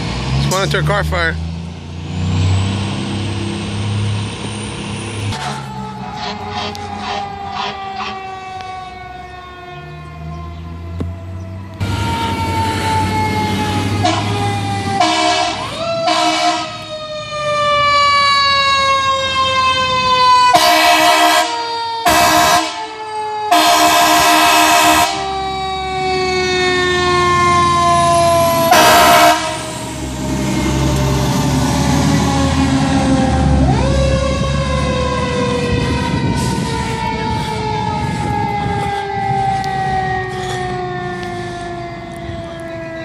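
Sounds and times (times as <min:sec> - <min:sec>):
fire truck siren winding: 0:04.8 - 0:43.0
air horn blasts: 0:14.0 - 0:14.4, 0:15.0 - 0:16.8, 0:20.5 - 0:22.9, 0:23.5 - 0:25.2, 0:28.6 - 0:29.7.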